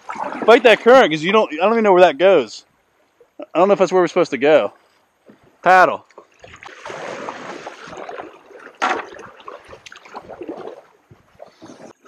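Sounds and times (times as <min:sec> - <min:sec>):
kayak paddle splashing water: 0:00.0 - 0:01.1, 0:05.2 - 0:12.0
water gurgling around hull: 0:00.0 - 0:01.2, 0:05.1 - 0:12.0.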